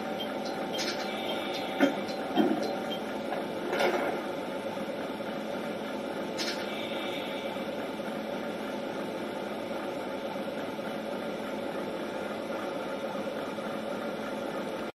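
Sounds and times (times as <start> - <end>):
diesel engine idling through speaker: 6.4 - 7.8.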